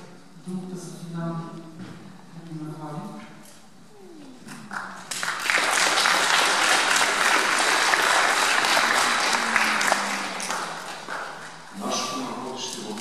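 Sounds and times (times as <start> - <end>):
audience applauding: 4.7 - 12.2.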